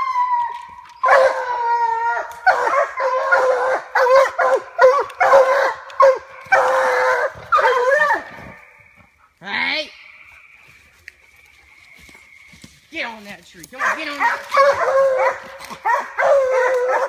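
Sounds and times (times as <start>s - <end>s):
hounds baying and barking: 0.0s - 9.4s, 13.6s - 17.0s.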